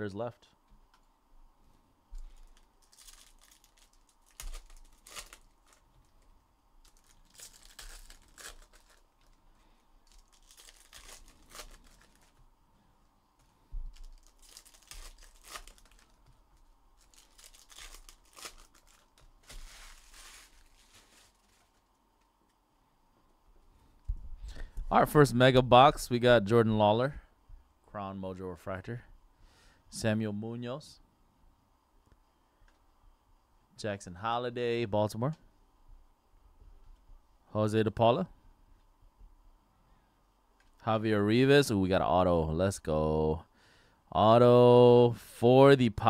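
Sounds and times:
foil wrappers tearing and crinkling: 2.4 - 6.2, 6.8 - 9.4, 10.0 - 12.4, 13.9 - 21.9.

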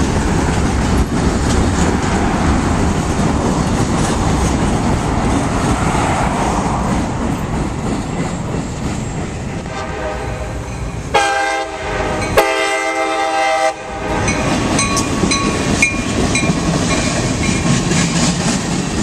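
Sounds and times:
train wheels clattering: 6.6 - 10.0, 13.7 - 19.0
locomotive air horn: 9.6 - 14.4.

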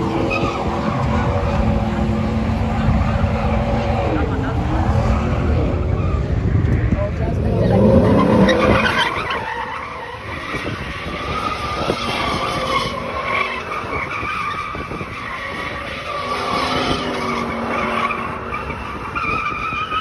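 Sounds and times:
truck engine running hard: 0.0 - 8.7.

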